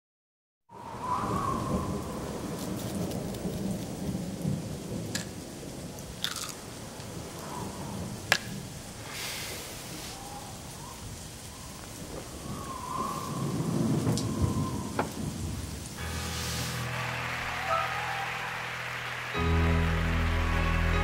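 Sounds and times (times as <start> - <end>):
rain: 0.7 - 21.0
rolling thunder: 0.8 - 6.0, 12.0 - 16.0.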